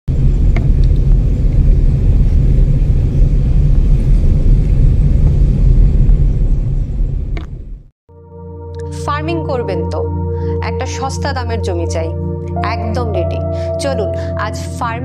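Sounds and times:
vehicle rumbling on paved road: 0.1s - 7.9s.

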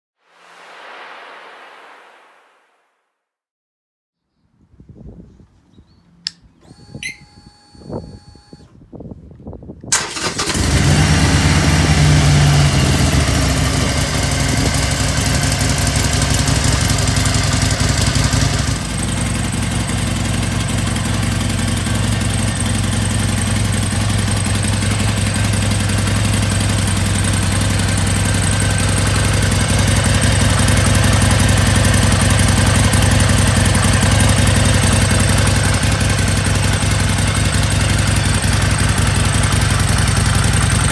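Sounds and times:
motorcycle engine idling: 12.9s - 40.9s.

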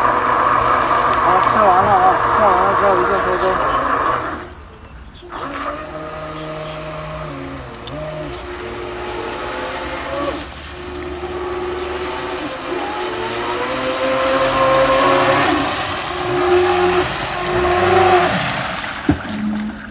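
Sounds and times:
electric boat motor whining: 0.0s - 19.9s
water spray hissing: 5.2s - 19.7s.

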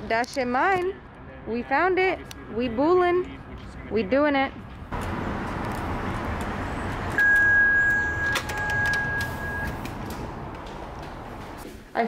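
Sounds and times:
city street traffic: 0.0s - 12.0s
door keypad electronic beep: 7.2s - 9.9s.

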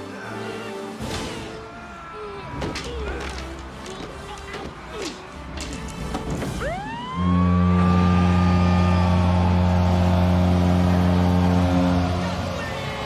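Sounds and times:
siren wail: 6.6s - 12.6s
loud low horn blast: 7.1s - 13.0s.

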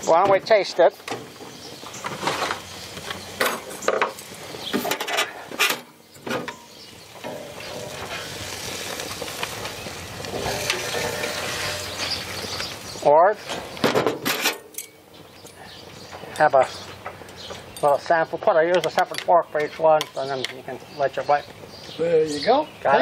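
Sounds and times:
hot grill sizzling: 0.0s - 23.0s
metal spatula scraping grill grate: 2.0s - 15.0s.

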